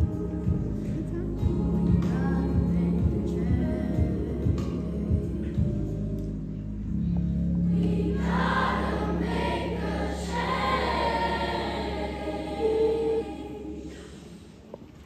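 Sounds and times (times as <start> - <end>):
choir singing: 7.7 - 14.6.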